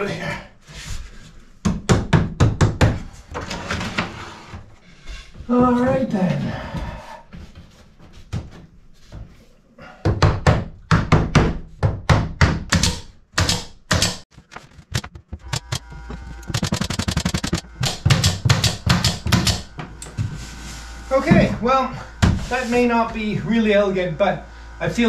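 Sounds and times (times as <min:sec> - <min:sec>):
pneumatic nailer firing into wood: 0:16.5 - 0:19.7.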